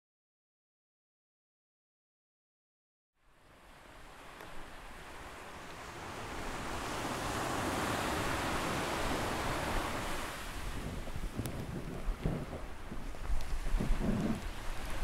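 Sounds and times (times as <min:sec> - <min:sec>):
ocean waves breaking on beach: 0:03.2 - 0:15.0.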